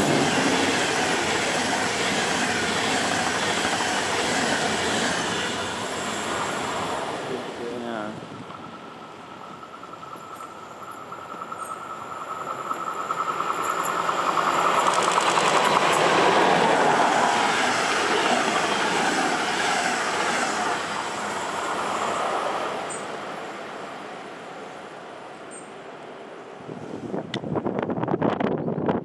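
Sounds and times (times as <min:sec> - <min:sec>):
train wheels rushing on rail: 0:00.0 - 0:28.1
electric locomotive whine: 0:00.0 - 0:29.0
rhythmic wheel clatter: 0:12.5 - 0:16.1.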